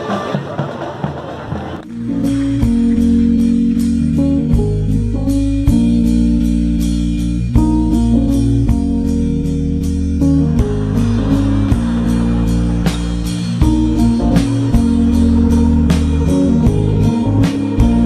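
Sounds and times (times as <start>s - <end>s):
guitar-led instrumental music: 1.8s - 18.0s
steady drum beat: 10.5s - 18.0s.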